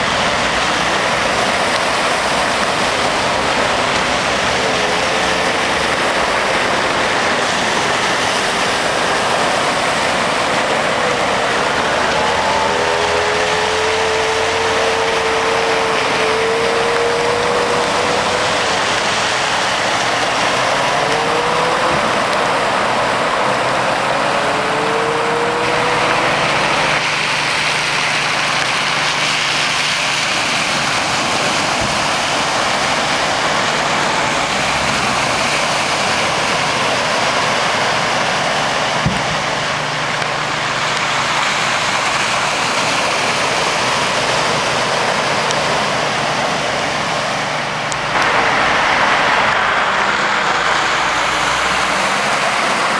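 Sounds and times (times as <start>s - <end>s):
engine revving: 0.0s - 52.9s
vehicle engines running: 0.0s - 52.9s
water rushing and splashing: 0.0s - 52.9s.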